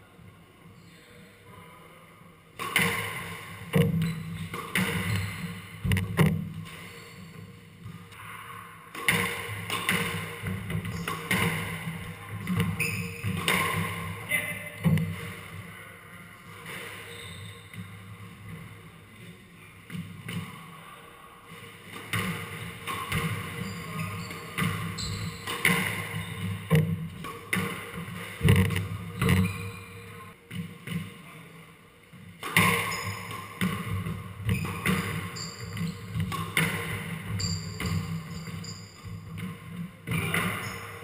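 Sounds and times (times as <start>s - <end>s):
squash ball hitting rackets and walls: 2.6s - 8.1s, 8.9s - 15.6s, 21.8s - 31.2s, 32.2s - 41.0s
shoes squeaking on wooden floor: 4.0s - 6.2s, 12.4s - 13.5s, 17.0s - 17.9s, 22.9s - 26.8s, 28.4s - 30.2s, 32.6s - 33.7s, 34.4s - 39.5s.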